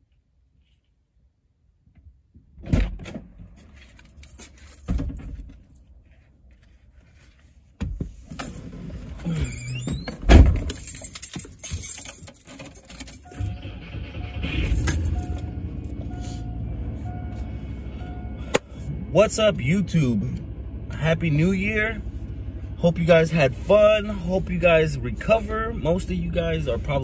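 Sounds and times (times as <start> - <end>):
keys jangling: 3.6 - 6.0, 10.1 - 13.4, 14.6 - 16.1.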